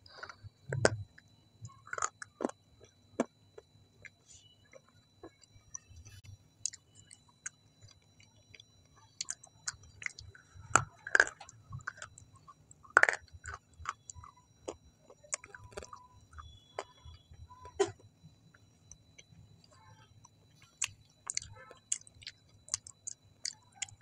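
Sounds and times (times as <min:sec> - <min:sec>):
person chewing: 0:00.0 - 0:03.4, 0:04.0 - 0:18.1, 0:18.8 - 0:24.0.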